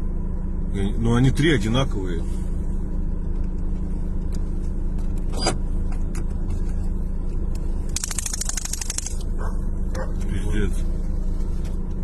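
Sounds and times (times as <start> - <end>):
car engine idling: 0.0 - 12.0
rapid clicking rattle: 7.9 - 9.2.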